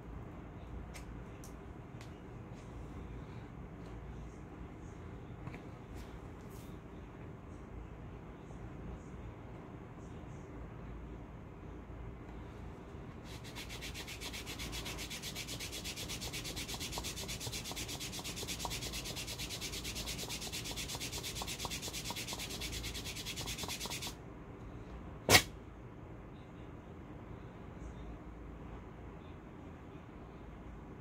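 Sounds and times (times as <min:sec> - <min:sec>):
rubbing strokes on wax strip: 0:13.2 - 0:24.2.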